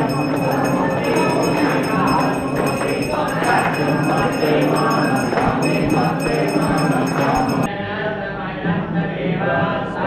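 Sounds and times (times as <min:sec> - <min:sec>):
bell ringing rapidly: 0:00.0 - 0:07.7
group of voices chanting: 0:00.0 - 0:10.0.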